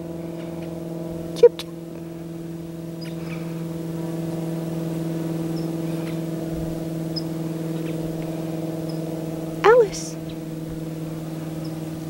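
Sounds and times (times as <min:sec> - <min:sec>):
hum of low tones: 0:00.0 - 0:12.0.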